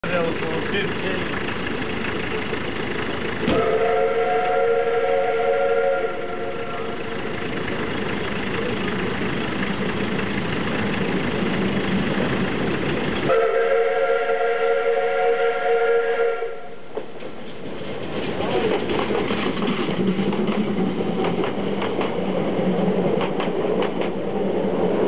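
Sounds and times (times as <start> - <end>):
steam locomotive running: 0.0 - 25.0
steam whistle blowing chord: 3.5 - 7.1, 13.3 - 16.8.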